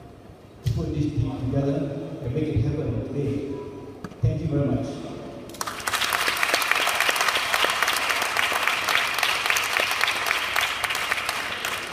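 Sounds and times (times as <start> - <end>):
audience applauding: 5.5 - 11.9.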